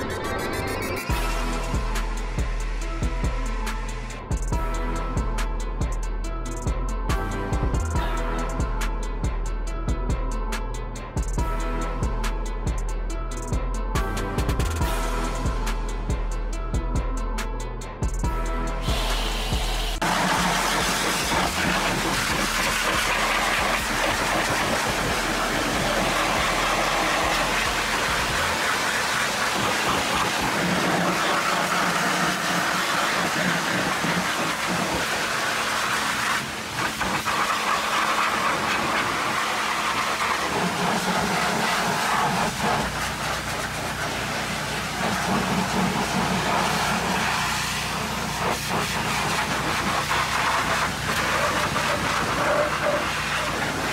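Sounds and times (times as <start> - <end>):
pressure washer jet spraying: 18.8 - 53.9.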